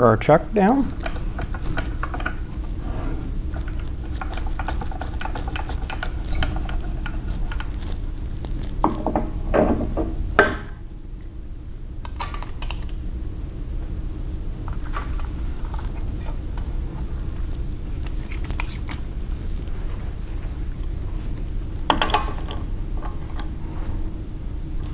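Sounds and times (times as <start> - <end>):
metal parts clicking and clunking: 0.8 - 2.4.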